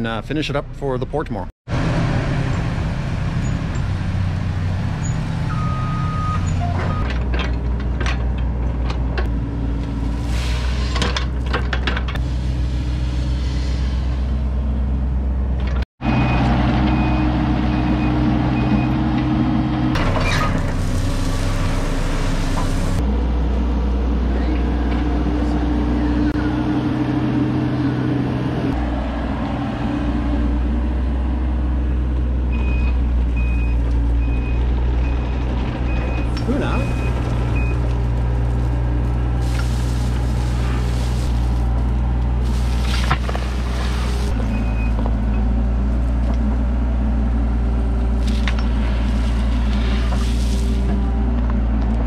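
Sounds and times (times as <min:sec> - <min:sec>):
excavator diesel engine running: 0:01.7 - 0:52.0
bucket scraping gravel: 0:36.3 - 0:44.6, 0:48.2 - 0:51.0.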